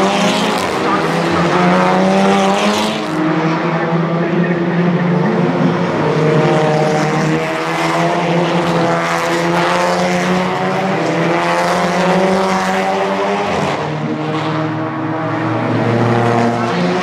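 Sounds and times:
race car engines passing: 0.0 - 17.0.

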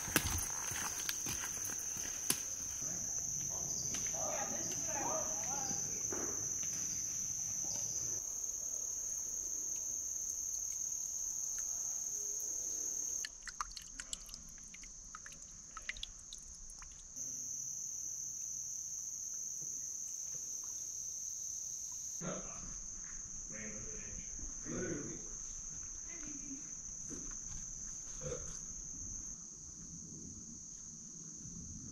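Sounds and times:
insects buzzing chorus: 0.0 - 13.3, 14.9 - 31.9
water dripping and trickling: 13.2 - 17.2.

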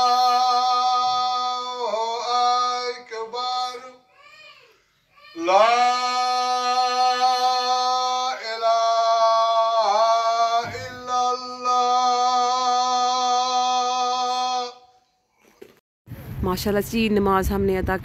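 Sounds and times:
man chanting: 0.0 - 4.1, 5.4 - 14.9.

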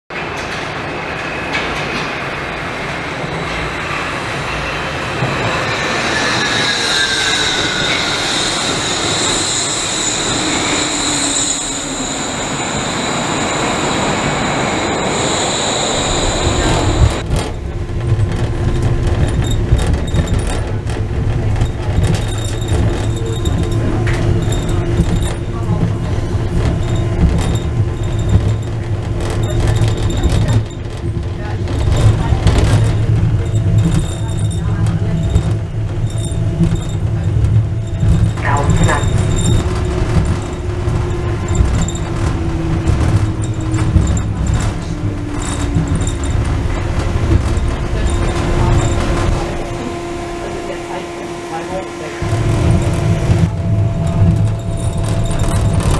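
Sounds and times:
railway car rumbling: 0.1 - 55.9
steady hum: 44.9 - 55.9.

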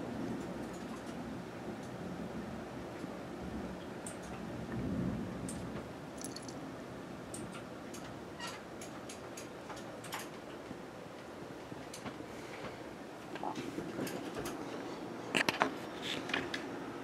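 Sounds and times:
steady rain falling: 0.0 - 13.4.

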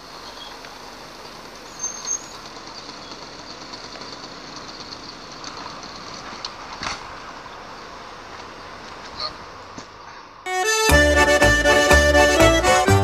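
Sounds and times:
two-stroke engine idling: 0.0 - 8.2.

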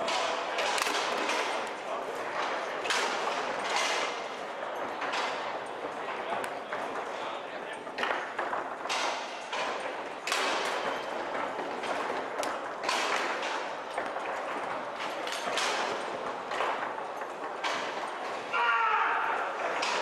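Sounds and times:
foosball ball clacking: 0.0 - 1.6, 7.9 - 18.4
foosball rods thudding: 0.0 - 5.8, 7.8 - 18.5, 19.7 - 20.0.

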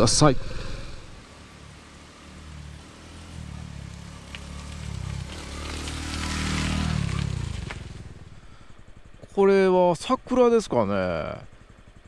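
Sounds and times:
motorcycle engine running: 1.1 - 9.8.

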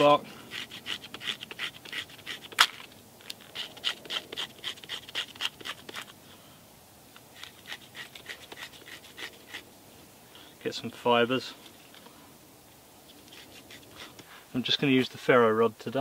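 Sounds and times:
knife scraping bark: 0.0 - 6.2, 7.3 - 9.7, 13.1 - 15.1.

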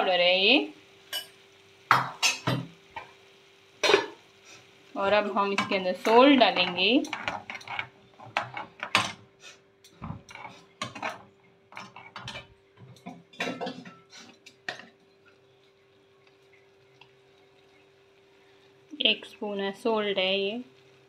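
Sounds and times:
spoon scraping metal pan: 5.6 - 8.8, 10.0 - 12.5.

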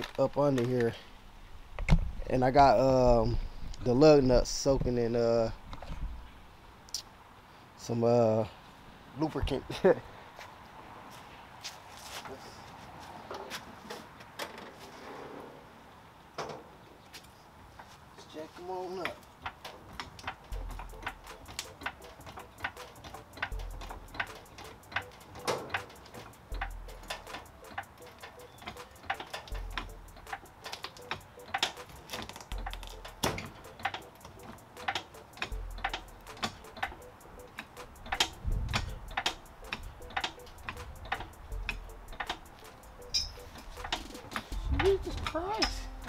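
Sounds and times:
floor jack clicking as pumped: 19.5 - 45.4.

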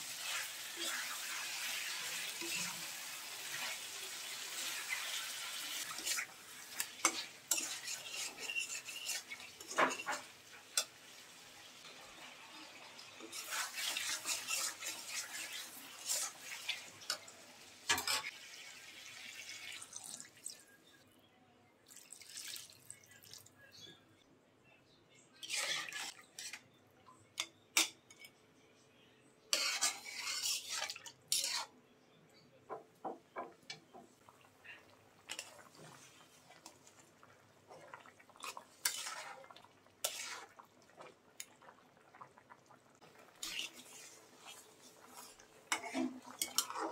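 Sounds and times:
spatula scraping metal pot: 5.7 - 10.9, 13.2 - 17.2, 25.4 - 26.6, 29.5 - 31.7, 38.4 - 40.6, 43.2 - 46.9.

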